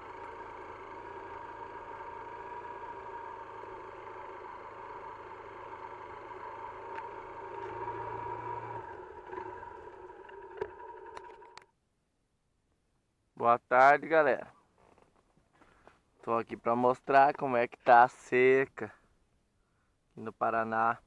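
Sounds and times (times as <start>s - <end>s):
motor humming: 0.0s - 11.6s.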